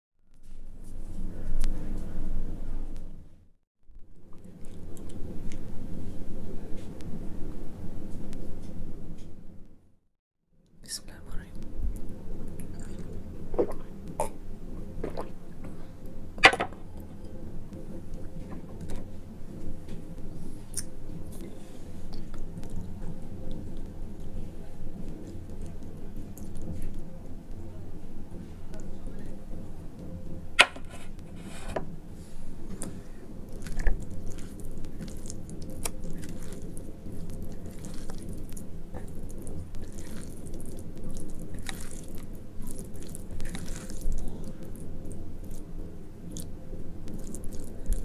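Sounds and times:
person gulping water: 12.6s - 14.4s
hand squishing mashed eggplant: 32.6s - 48.0s.

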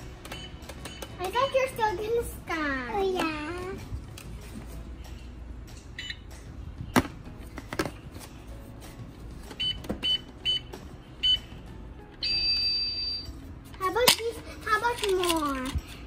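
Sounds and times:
toy scanner beeping: 0.2s - 1.9s, 12.2s - 13.3s.

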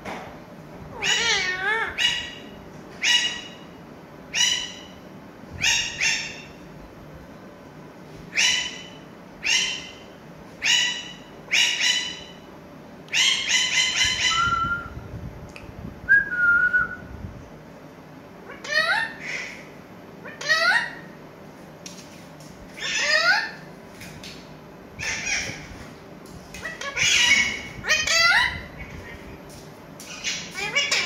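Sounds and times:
parakeets squawking: 1.0s - 3.6s, 13.1s - 14.4s, 18.5s - 21.1s, 22.8s - 23.7s, 25.0s - 25.7s, 26.6s - 29.3s, 30.1s - 31.0s.

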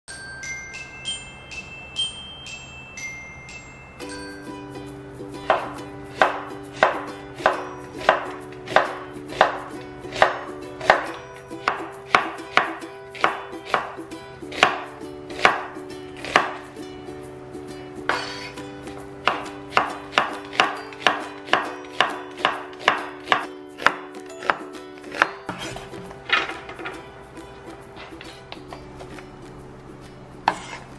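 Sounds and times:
knife chopping onto wooden board: 5.4s - 13.9s, 15.4s - 16.6s, 19.2s - 26.2s.

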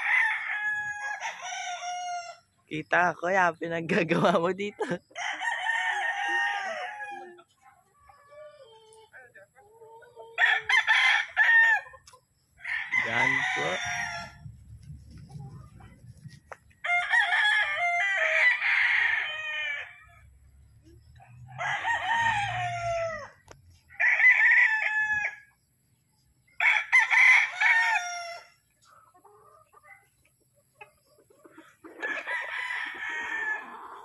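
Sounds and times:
roosters crowing: 0.0s - 2.6s, 5.1s - 7.5s, 10.4s - 14.6s, 15.8s - 20.4s, 21.3s - 25.6s, 26.5s - 28.7s, 31.8s - 34.0s.

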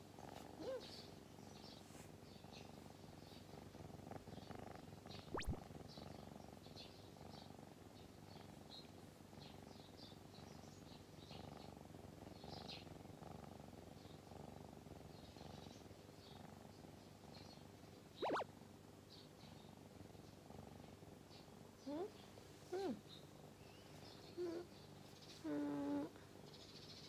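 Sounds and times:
kitten purring: 2.5s - 6.6s, 24.4s - 24.7s, 25.4s - 26.2s
faint high chirps: 5.3s - 5.6s, 18.2s - 18.4s
sharp rising sweep tone: 5.4s - 5.6s, 18.2s - 18.4s.

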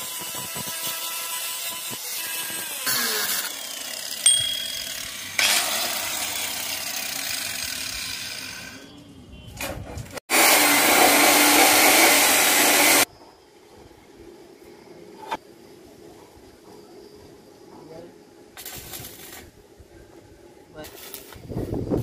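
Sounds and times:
angle grinder grinding metal: 0.0s - 8.8s.

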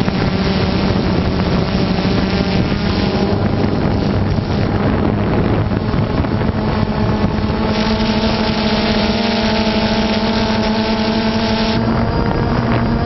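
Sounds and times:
drone propellers humming: 0.0s - 13.0s
wind noise on microphone: 0.0s - 13.0s.

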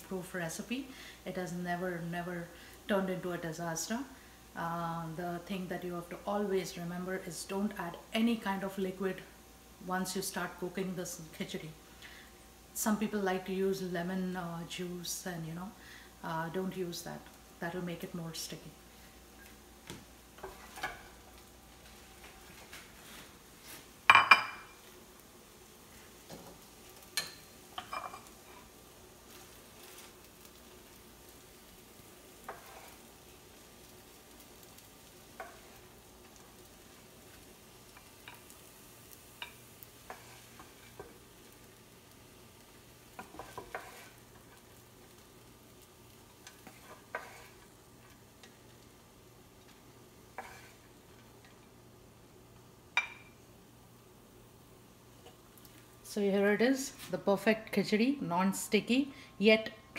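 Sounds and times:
spoon scraping and clinking on pan: 27.1s - 28.4s, 43.2s - 44.2s, 46.5s - 47.6s, 50.4s - 50.8s.

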